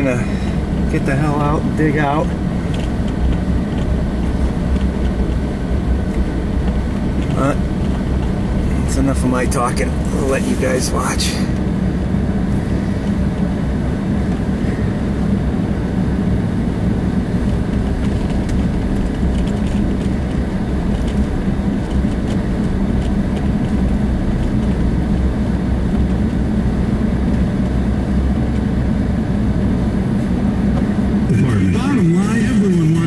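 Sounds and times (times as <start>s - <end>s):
engine drone: 0.0s - 33.0s
tyre and road rumble: 0.0s - 33.0s.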